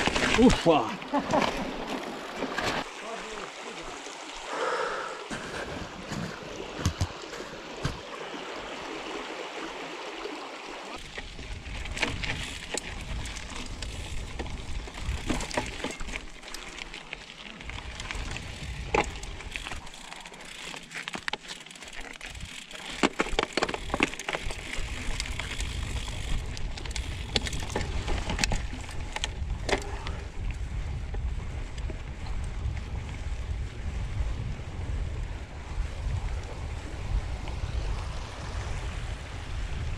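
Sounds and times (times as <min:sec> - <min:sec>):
bike rattling over bumps: 0:00.0 - 0:02.9, 0:11.0 - 0:37.4
stream running: 0:00.0 - 0:39.9
wind rumbling on microphone: 0:11.0 - 0:16.7, 0:17.4 - 0:20.1, 0:23.6 - 0:39.9.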